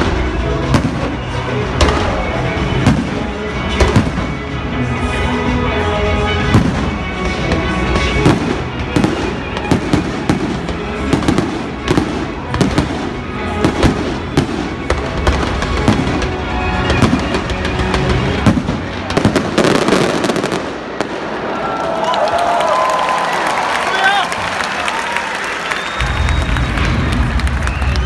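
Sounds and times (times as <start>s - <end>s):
music: 0.0s - 21.4s, 23.0s - 28.0s
firework crackling: 6.5s - 23.2s.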